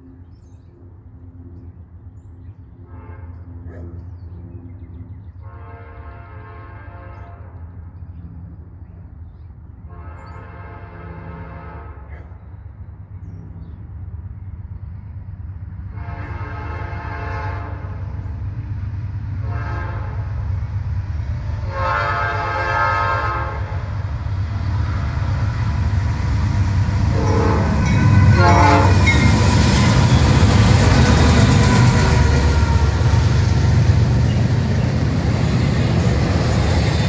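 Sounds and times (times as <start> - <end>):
diesel locomotive engine rumble: 0.0 - 37.0
train horn blasts: 2.8 - 3.8, 5.4 - 7.8, 9.8 - 12.2, 15.8 - 18.3, 19.3 - 20.5, 21.4 - 24.0, 27.0 - 35.0.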